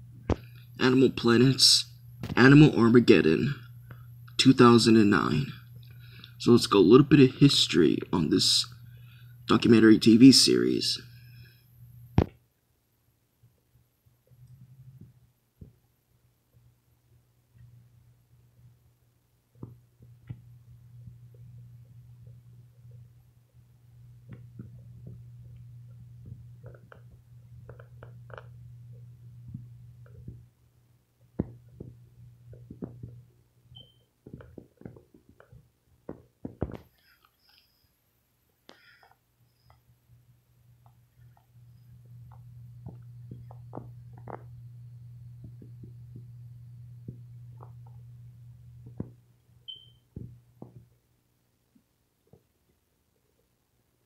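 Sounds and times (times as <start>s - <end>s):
steady low hum: 0.0s - 54.0s
faint clicks and knocks: 24.2s - 30.6s, 31.2s - 37.9s, 40.8s - 48.1s, 48.8s - 51.0s
low hum: 39.5s - 50.6s.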